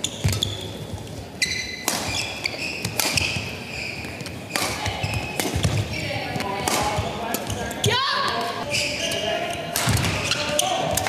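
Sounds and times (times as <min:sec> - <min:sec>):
shoes squeaking on court: 0:00.0 - 0:11.0
racket hitting shuttlecock: 0:01.7 - 0:03.6, 0:04.2 - 0:07.5, 0:09.7 - 0:11.0.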